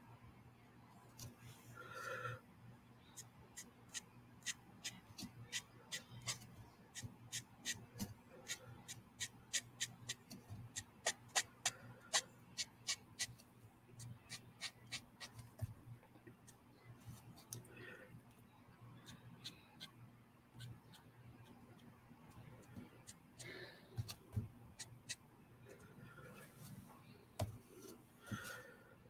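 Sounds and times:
marker ticking across paper: 3.2 - 13.4, 14.0 - 15.6, 20.6 - 25.2.

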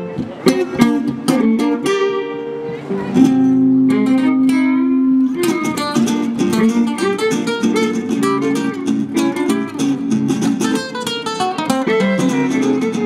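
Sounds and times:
acoustic guitars strumming: 0.0 - 13.0
violin: 5.3 - 13.0.

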